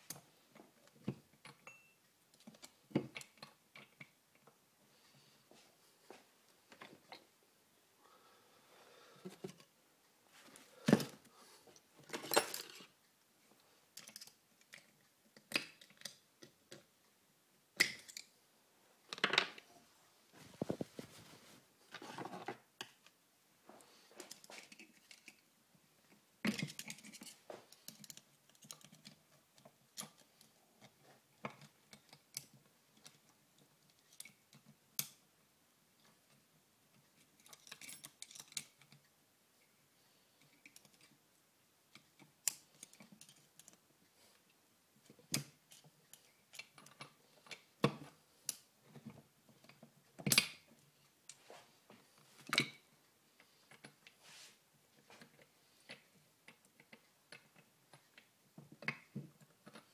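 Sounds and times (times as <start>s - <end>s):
metal tools clicking and scraping: 12.1s - 12.9s, 26.5s - 29.2s, 37.4s - 39.0s.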